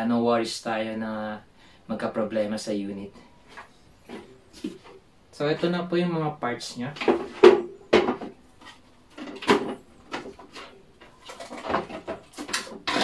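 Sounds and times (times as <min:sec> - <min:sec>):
plastic and metal clicks and knocks: 0:09.1 - 0:13.0.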